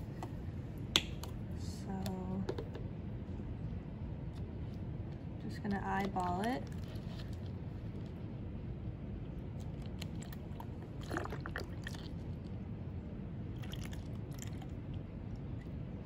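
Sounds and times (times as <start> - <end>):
liquid trickling into cup: 9.9 - 12.2, 13.6 - 14.8.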